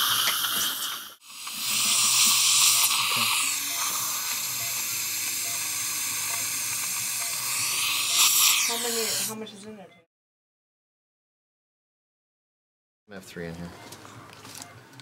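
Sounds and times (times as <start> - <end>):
dental suction hiss: 0.0 - 9.4.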